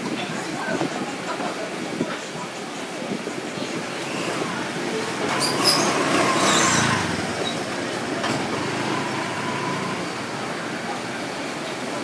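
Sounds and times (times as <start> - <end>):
street market background noise: 0.0 - 12.0
vehicle engine passing: 5.2 - 10.8.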